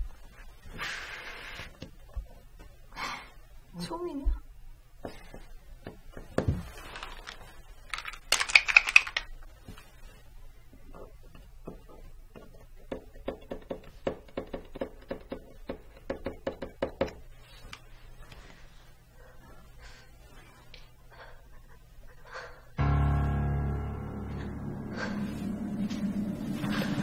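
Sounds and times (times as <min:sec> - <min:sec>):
marker tapping and scratching on wood: 0:11.0 - 0:17.2.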